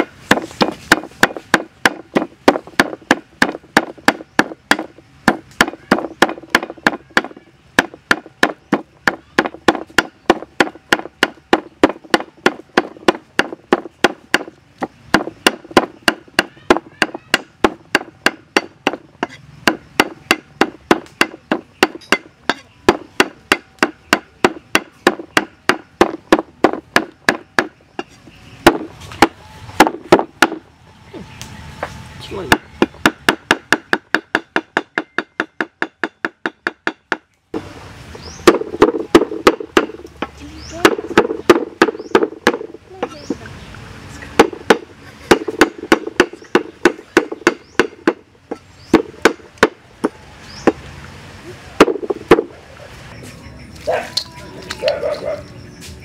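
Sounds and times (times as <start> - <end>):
cleaver chopping meat on wooden block: 0.3 - 27.8, 32.5 - 37.2, 40.8 - 42.7, 44.4 - 50.2.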